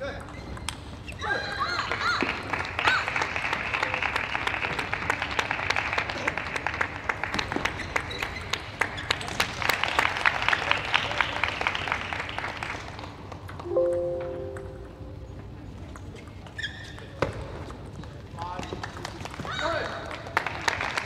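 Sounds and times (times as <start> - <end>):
spectators applauding: 1.7 - 13.8, 18.8 - 21.0.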